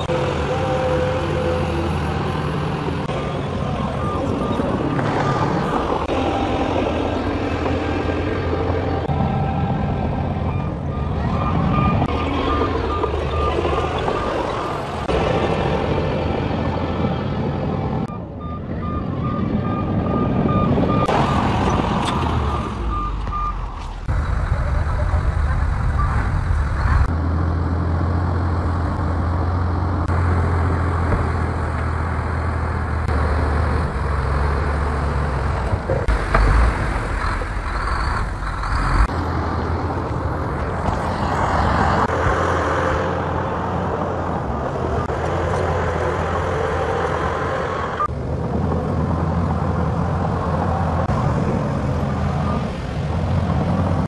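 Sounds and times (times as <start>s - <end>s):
bulldozer diesel engine under load: 0.0s - 54.0s
reversing alarm beeping: 10.4s - 15.1s, 18.1s - 21.8s.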